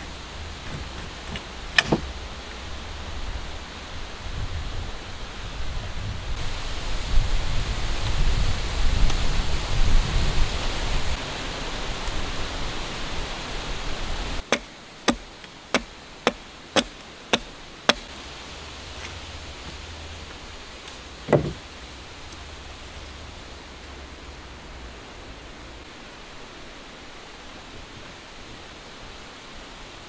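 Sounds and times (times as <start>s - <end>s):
dull thump: 0.0s - 2.1s, 21.2s - 21.7s
hand tool striking wood: 0.0s - 2.1s, 14.4s - 18.1s, 21.3s - 21.6s.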